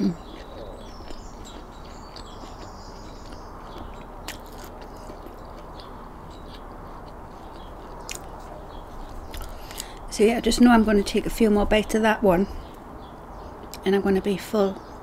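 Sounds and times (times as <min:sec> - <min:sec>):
chewing bread: 0:00.0 - 0:10.0.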